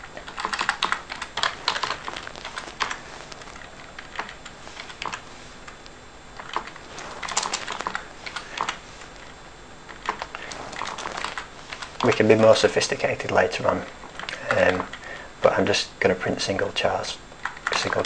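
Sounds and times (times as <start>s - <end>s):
typing on computer keyboard: 0.2s - 3.0s, 3.6s - 5.2s, 6.4s - 8.8s, 9.9s - 11.9s, 17.4s - 18.0s.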